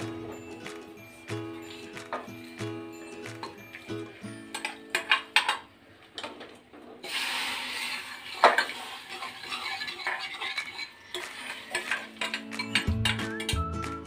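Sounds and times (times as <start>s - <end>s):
metal pan and tongs clinking: 3.3s - 6.4s, 8.3s - 13.6s
hot oil sizzling: 7.0s - 13.2s.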